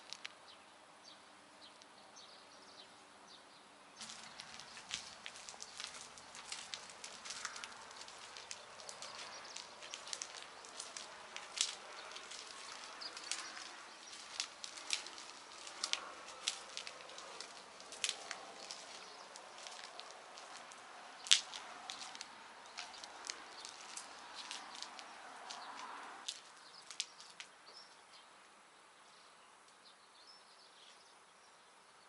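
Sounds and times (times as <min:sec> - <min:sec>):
rainwater dripping and pattering: 0:04.0 - 0:27.5.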